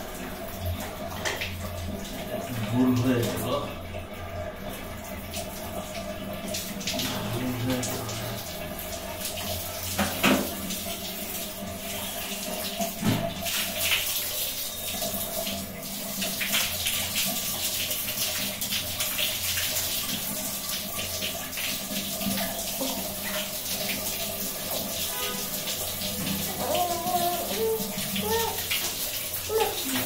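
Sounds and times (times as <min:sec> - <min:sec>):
water running and splashing: 0:00.0 - 0:30.0.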